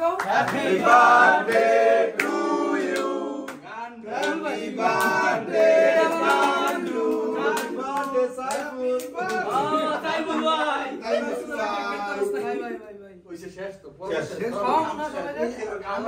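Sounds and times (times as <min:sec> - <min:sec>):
young men singing together: 0:00.2 - 0:12.1.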